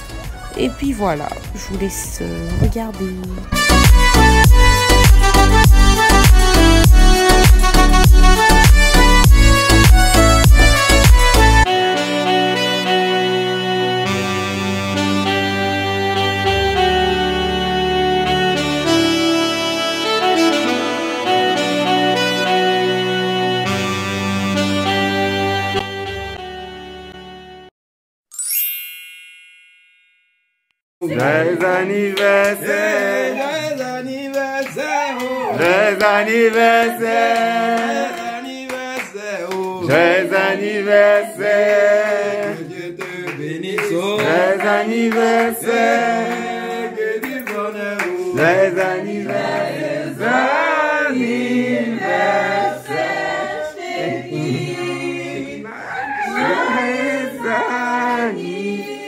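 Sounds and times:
group of voices singing: 31.0s - 59.0s.

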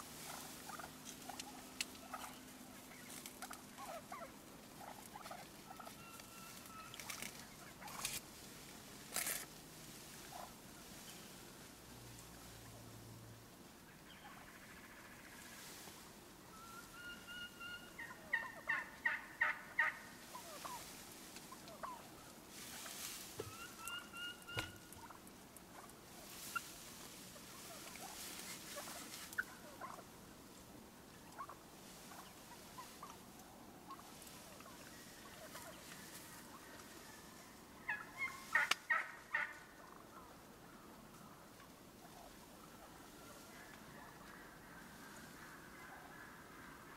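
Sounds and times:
faint rustling: 0.0s - 13.2s, 20.1s - 40.0s
turkey yelping: 0.2s - 8.2s, 13.9s - 15.4s, 16.5s - 20.9s, 21.5s - 22.8s, 23.4s - 25.9s, 27.4s - 30.1s, 31.2s - 41.4s, 42.0s - 46.9s.

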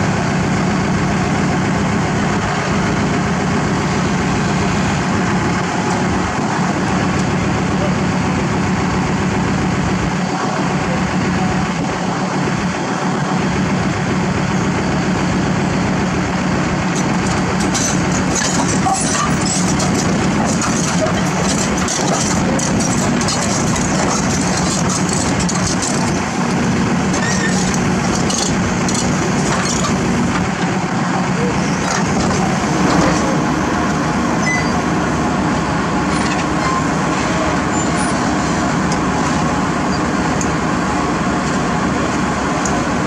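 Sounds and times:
excavator diesel engine running: 0.0s - 43.0s
steel tracks clinking and scraping: 16.9s - 30.7s, 31.4s - 34.8s.

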